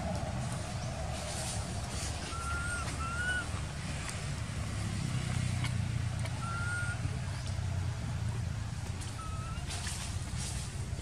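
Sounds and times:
steady low rumble: 0:00.0 - 0:11.0
baby monkey whistle-like cry: 0:02.3 - 0:03.5, 0:06.4 - 0:07.0.

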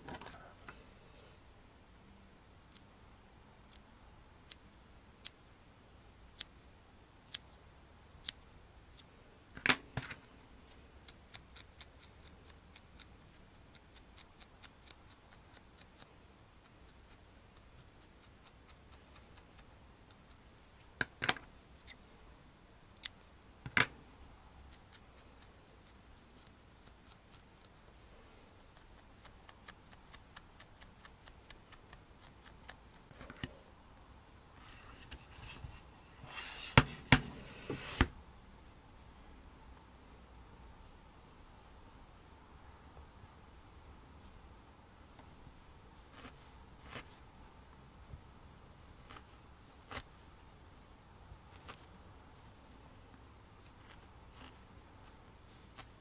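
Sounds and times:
scissors snipping wool: 0:11.0 - 0:20.4, 0:24.7 - 0:27.8.

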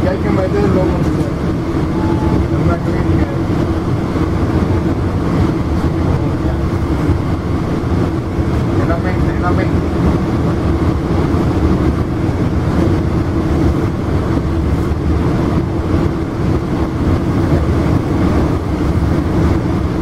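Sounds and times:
train rumble from inside coach: 0:00.0 - 0:20.0.

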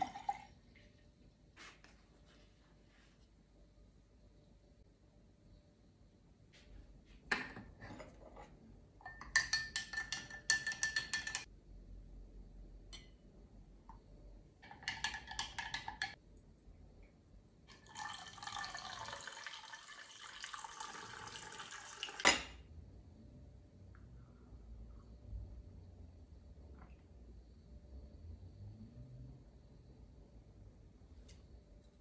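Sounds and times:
coffee pouring: 0:00.0 - 0:01.0, 0:17.7 - 0:22.6
glass clink: 0:09.0 - 0:11.5
glassy clinking and rattling: 0:09.0 - 0:11.5.

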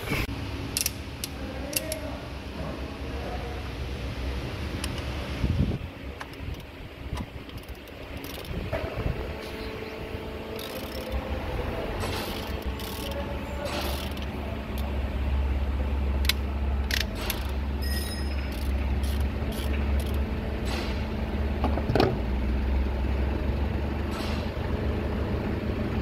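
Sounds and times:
steady low rumble: 0:00.0 - 0:26.0
metal tools clicking and knocking: 0:06.2 - 0:08.6, 0:16.2 - 0:20.9.

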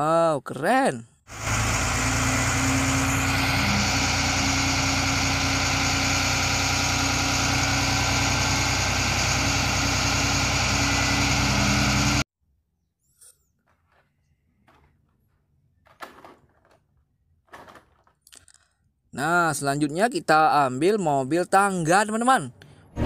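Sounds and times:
diesel engine idling: 0:01.3 - 0:12.2.

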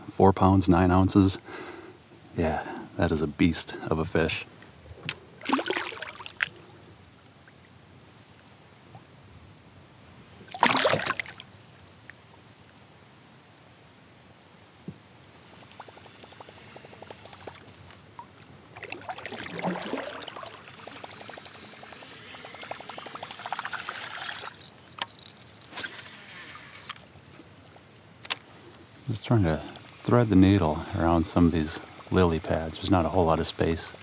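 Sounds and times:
water pouring and trickling: 0:05.4 - 0:07.8, 0:10.5 - 0:12.8, 0:15.6 - 0:27.0
water splashing: 0:05.4 - 0:07.8, 0:10.4 - 0:12.8, 0:15.6 - 0:24.9.

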